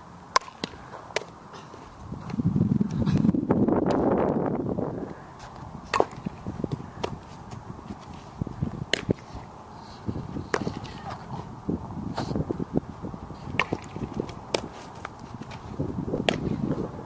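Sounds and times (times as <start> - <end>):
bat cracking ball: 0.3 - 1.4, 5.9 - 6.4, 8.9 - 9.2, 13.5 - 14.8, 16.2 - 16.8.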